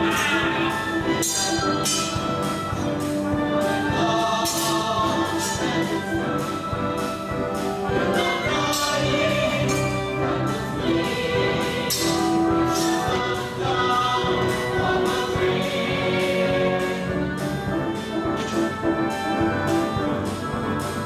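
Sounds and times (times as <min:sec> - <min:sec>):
orchestral music with brass: 0:00.0 - 0:21.0.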